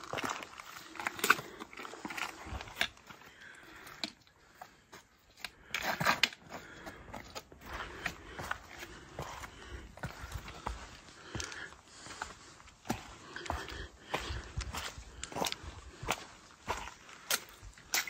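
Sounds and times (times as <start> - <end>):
footsteps on rocky trail: 0.0 - 18.0
trekking poles clicking on rock: 5.4 - 6.6.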